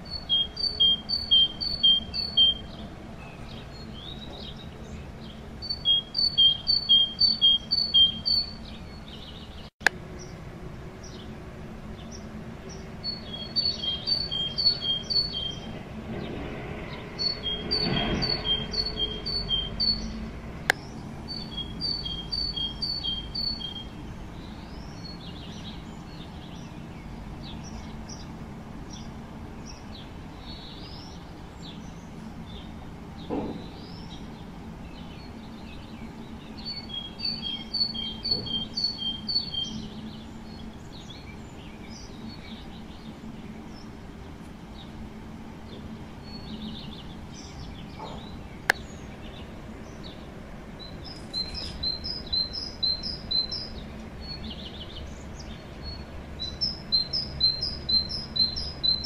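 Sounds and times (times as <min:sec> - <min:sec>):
soft bird chirps: 0:00.0 - 0:10.4, 0:11.9 - 0:45.0, 0:45.6 - 0:59.0
low rushing noise: 0:08.1 - 0:37.2
bird singing two-note phrases: 0:21.3 - 0:24.0.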